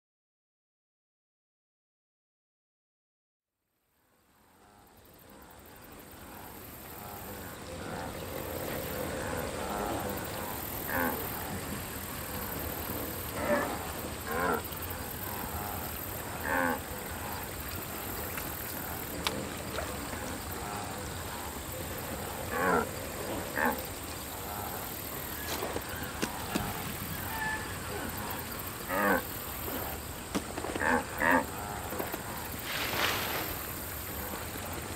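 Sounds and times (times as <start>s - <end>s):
high outdoor hiss: 3.6s - 34.9s
wildebeest grunting: 9.3s - 11.6s, 13.4s - 14.7s, 15.3s - 17.4s, 20.1s - 23.8s, 24.4s - 32.4s.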